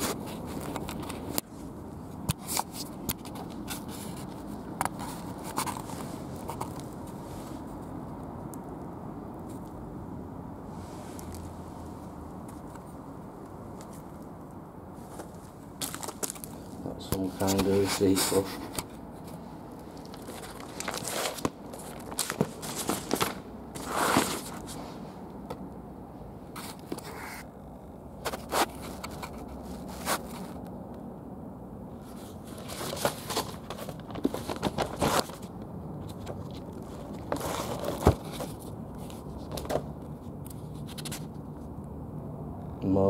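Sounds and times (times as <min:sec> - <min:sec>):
paper rustling and crinkling: 0:02.3 - 0:07.7, 0:15.0 - 0:24.9, 0:28.2 - 0:30.6, 0:32.0 - 0:39.9, 0:40.5 - 0:41.4.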